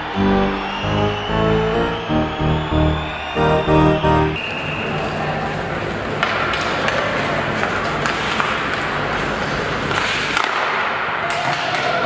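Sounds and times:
hockey stick clicking puck: 0:06.2 - 0:12.0.

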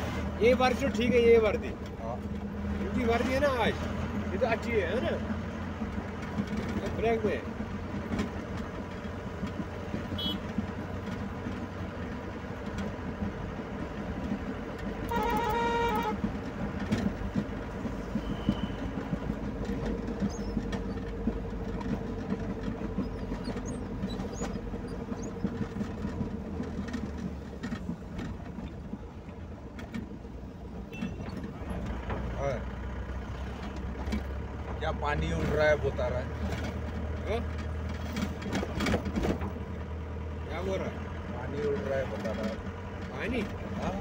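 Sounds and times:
car engine and road noise: 0:00.0 - 0:44.0
car horn blast: 0:10.1 - 0:10.6, 0:15.0 - 0:16.3, 0:18.2 - 0:19.0, 0:30.9 - 0:31.3.

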